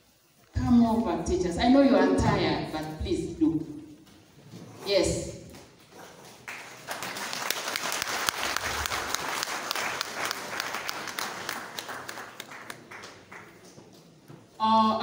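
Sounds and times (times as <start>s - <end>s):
audience applauding: 6.4s - 13.9s.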